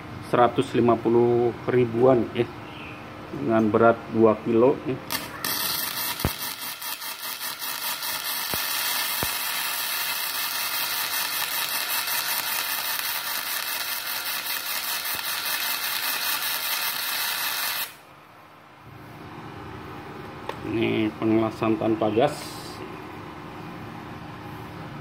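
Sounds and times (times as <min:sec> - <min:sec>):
welding arc crackling hiss: 0:05.1 - 0:18.0
welding arc sharp pops: 0:05.1 - 0:18.0.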